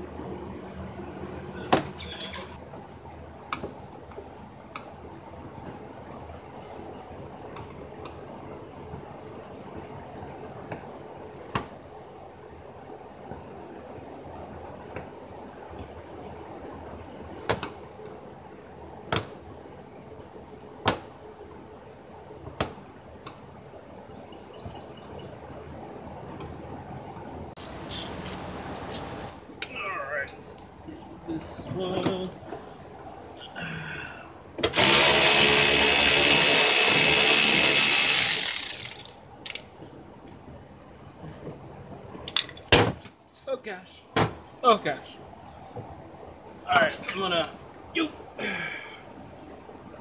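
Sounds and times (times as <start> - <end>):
cordless power ratchet running: 34.7 - 39.2.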